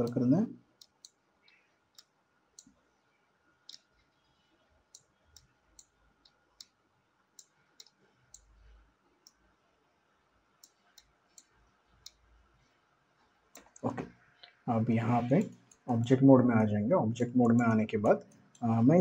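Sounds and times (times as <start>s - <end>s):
computer mouse clicking: 7.4s - 8.5s, 10.6s - 12.2s, 17.4s - 18.6s.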